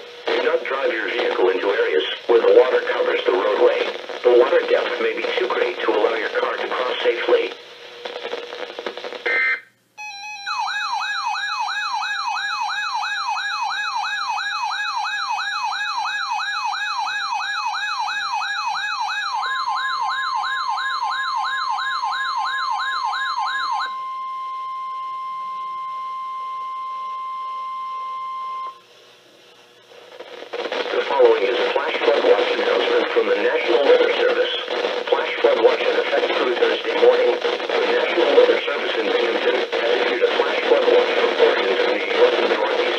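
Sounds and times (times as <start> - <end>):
radio voice: 0.2 - 7.6, 30.8 - 42.9
electronic warbling siren: 9.3 - 28.8.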